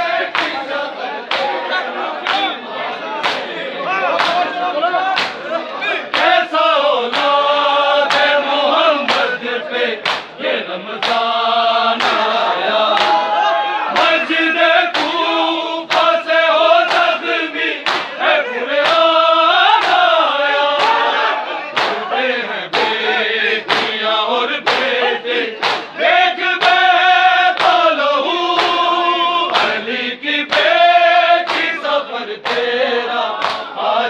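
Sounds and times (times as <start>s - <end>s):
men chanting together: 0.0s - 34.0s.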